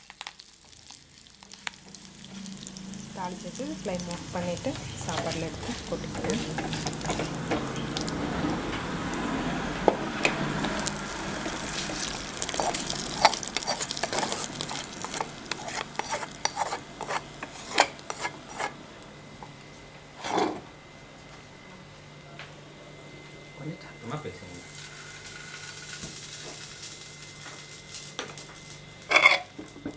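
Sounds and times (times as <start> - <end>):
spices sizzling in ghee: 0.0 - 19.3, 24.5 - 29.9
wooden spatula scraping pan: 5.0 - 7.4, 11.4 - 18.8, 20.2 - 20.6.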